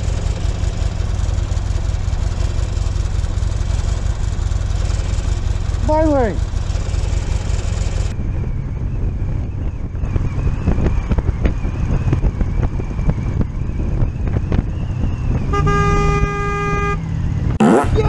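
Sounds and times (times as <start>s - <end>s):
motorcycle riding rumble: 0.0s - 18.0s
vehicle horn blast: 15.4s - 17.1s.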